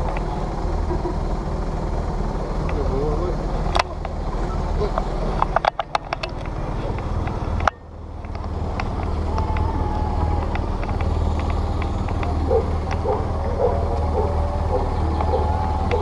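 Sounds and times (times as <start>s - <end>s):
distant voices: 0.0s - 16.0s
camera handling rumble: 4.9s - 13.1s.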